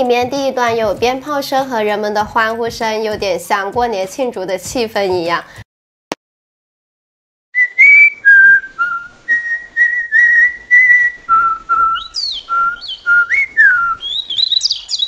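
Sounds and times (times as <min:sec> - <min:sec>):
person whistling a melody: 0:07.6 - 0:14.1
birdsong chirps: 0:09.6 - 0:15.0.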